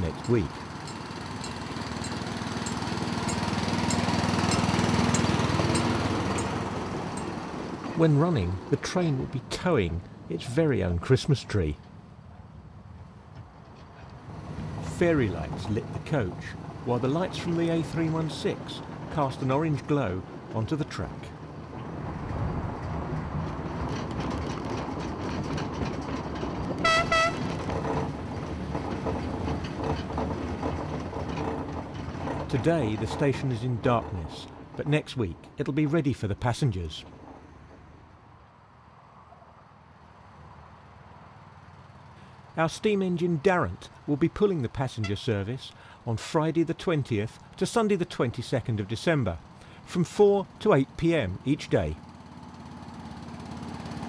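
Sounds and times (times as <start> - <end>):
locomotive engine chugging: 0.0 - 12.0, 13.8 - 22.1, 23.4 - 37.8, 42.2 - 54.0
locomotive horn toots: 26.8 - 27.7, 45.0 - 45.3.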